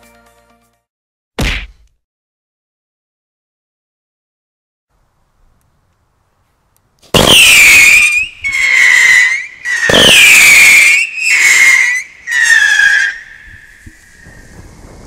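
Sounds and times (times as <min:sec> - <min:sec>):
whistling fireworks: 0:07.2 - 0:15.0.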